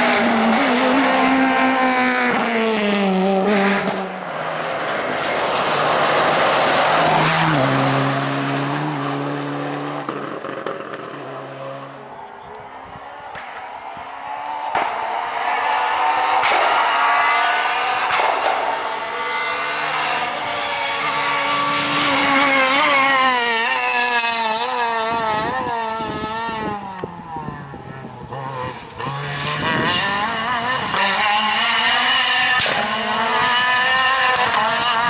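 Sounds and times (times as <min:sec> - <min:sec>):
rally car engine revving: 0:00.0 - 0:12.7, 0:13.3 - 0:35.0.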